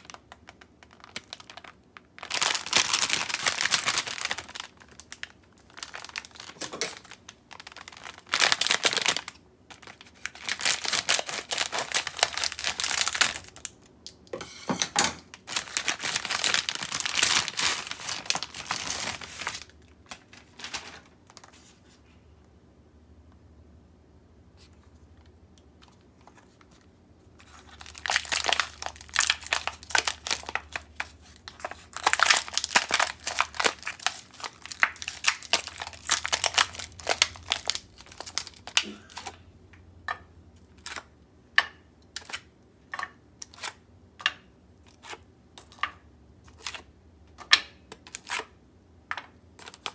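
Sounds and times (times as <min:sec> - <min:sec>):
plastic packaging crinkling: 0:00.0 - 0:14.2, 0:15.2 - 0:21.9, 0:25.8 - 0:39.4, 0:49.6 - 0:49.9.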